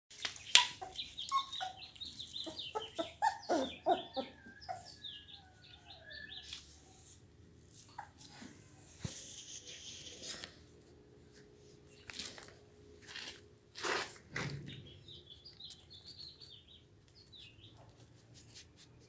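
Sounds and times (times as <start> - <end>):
high chirping peeps: 0.2 - 6.7, 14.8 - 17.9
puppies whimpering and squealing: 0.6 - 6.4.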